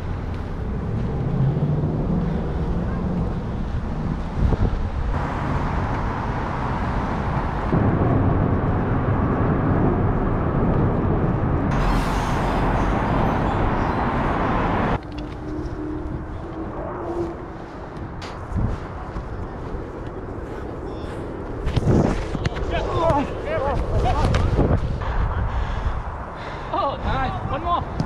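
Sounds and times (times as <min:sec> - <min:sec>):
road traffic: 0:00.0 - 0:28.0.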